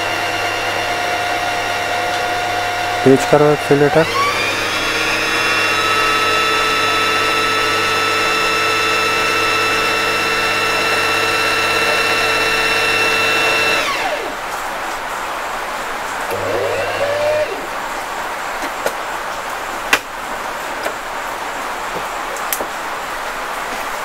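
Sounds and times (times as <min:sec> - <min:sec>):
sewing machine motor whine: 0:00.0 - 0:14.4, 0:16.3 - 0:17.7.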